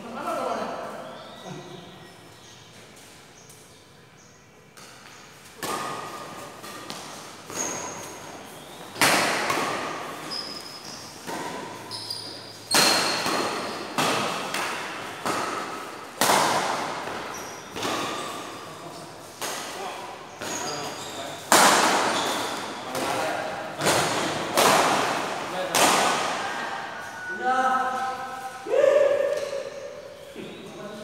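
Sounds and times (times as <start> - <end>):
rackets striking shuttlecock: 4.7 - 11.8, 12.5 - 18.6.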